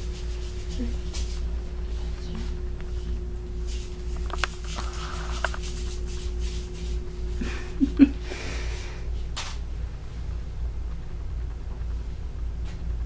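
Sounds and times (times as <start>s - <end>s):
low room hum: 0.0s - 13.0s.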